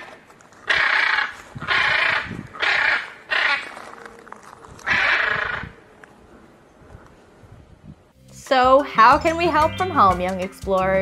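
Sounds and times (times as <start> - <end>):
macaw squawking: 0.6 - 3.8, 4.8 - 5.8.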